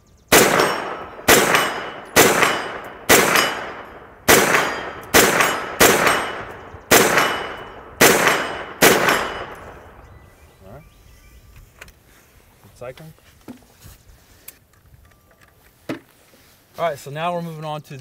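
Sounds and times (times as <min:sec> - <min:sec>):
bullets ringing on steel targets: 0:00.3 - 0:09.9
carbine gunshots: 0:00.3 - 0:10.0.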